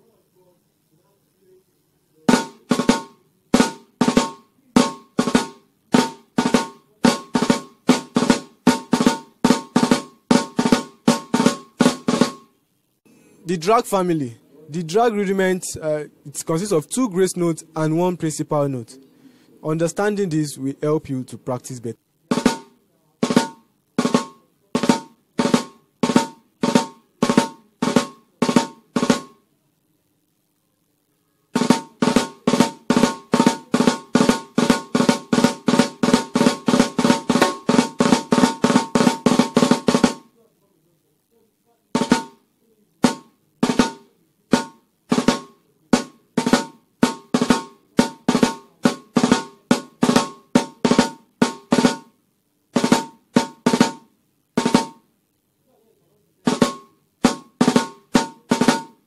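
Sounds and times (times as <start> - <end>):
snare drum drag rudiments: 2.3 - 12.6, 22.2 - 29.4, 31.5 - 40.4, 41.9 - 55.1, 56.4 - 59.0.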